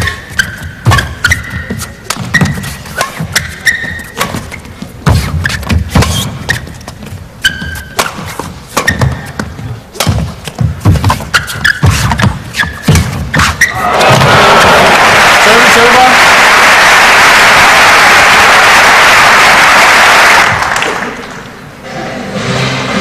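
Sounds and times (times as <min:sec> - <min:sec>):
racket striking shuttlecock: 0:00.0 - 0:13.7
shoes squeaking: 0:00.0 - 0:13.8.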